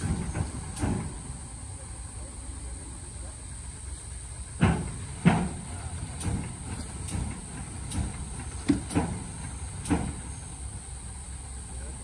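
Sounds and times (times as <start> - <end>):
truck engine rumbling: 0.0 - 12.0
sharp knocks: 4.6 - 10.3.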